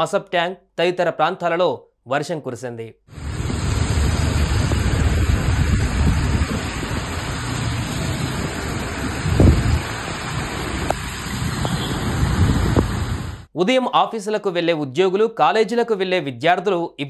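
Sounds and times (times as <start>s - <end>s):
low traffic rumble: 3.1s - 13.5s
rain and tyres hissing on water: 3.1s - 13.5s.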